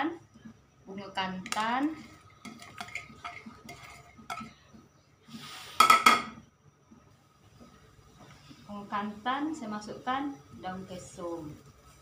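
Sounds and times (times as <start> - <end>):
ladle scraping on pot: 1.4 - 4.6.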